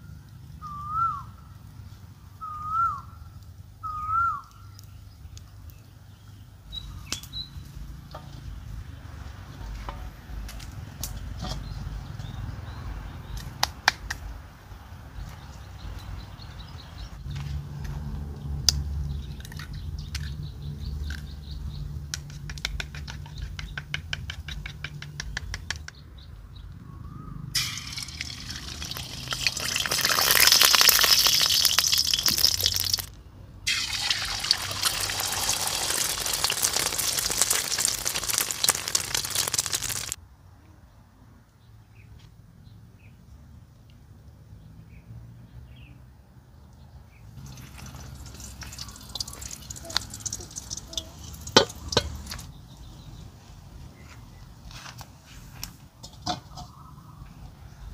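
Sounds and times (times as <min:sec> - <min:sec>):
egg sizzling in hot oil: 0:27.6 - 0:33.1, 0:33.7 - 0:40.2, 0:47.4 - 0:52.5.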